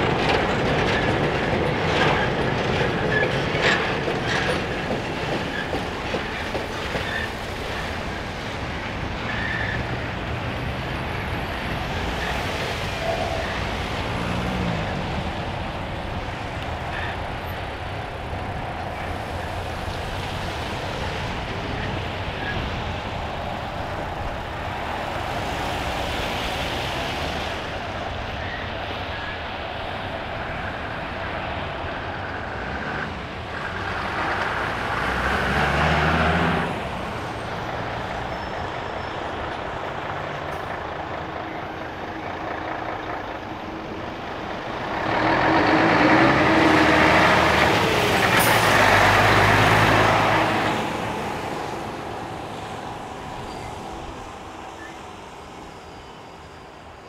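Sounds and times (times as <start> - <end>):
steady vehicle noise: 0.0 - 57.0
vehicle passing loudly: 31.1 - 38.1, 44.8 - 53.6.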